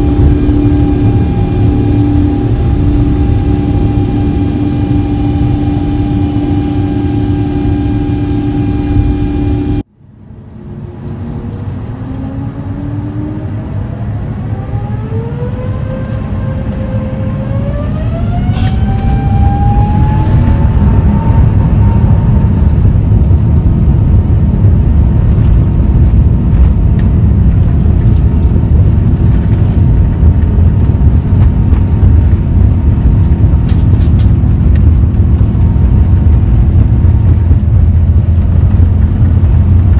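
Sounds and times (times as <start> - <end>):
jet engine whine: 0.0 - 39.9
low cabin rumble: 0.0 - 39.9.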